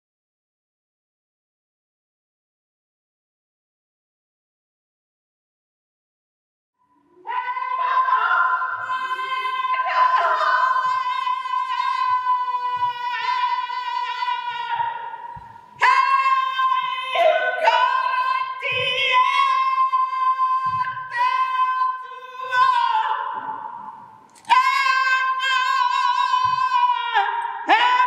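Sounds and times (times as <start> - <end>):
woman singing unaccompanied: 7.0 - 28.0.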